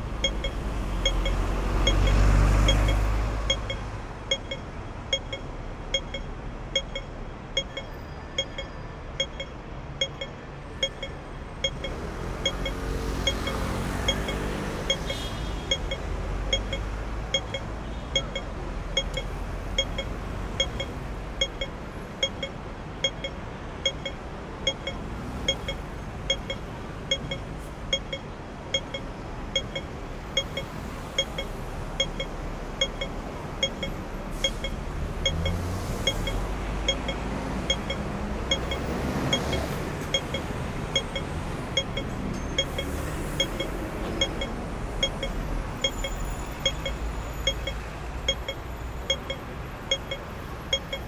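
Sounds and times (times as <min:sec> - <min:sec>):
city traffic rumble: 0:00.0 - 0:51.0
crossing signal beeping: 0:00.0 - 0:51.0
vehicle passing: 0:00.7 - 0:03.6, 0:11.9 - 0:15.0.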